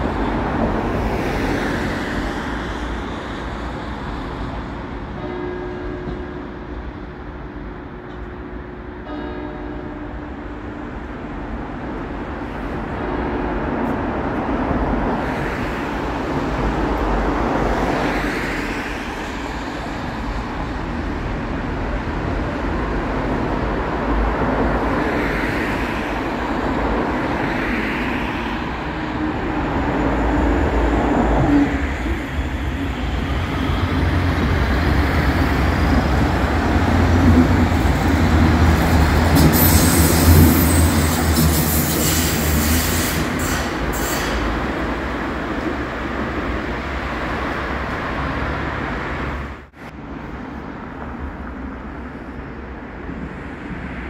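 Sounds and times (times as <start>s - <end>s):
low rumble of traffic: 0.0s - 54.0s
vehicles passing: 0.0s - 54.0s
train running in with hiss: 10.4s - 47.5s.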